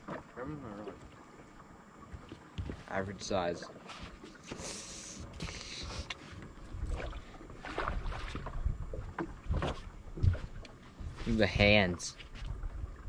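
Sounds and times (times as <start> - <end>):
wind rumbling on microphone: 6.4 - 13.0.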